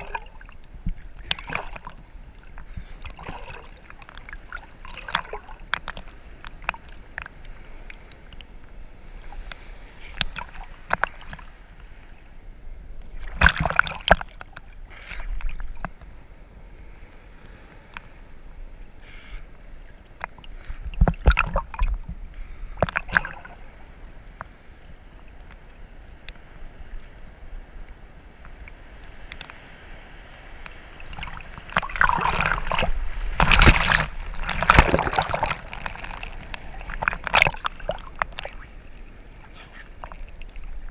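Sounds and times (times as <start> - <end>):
wave breaking: 0.0 - 7.3, 20.2 - 23.9, 29.3 - 40.9
sea water sloshing: 0.0 - 16.3, 16.9 - 27.0, 28.3 - 40.9.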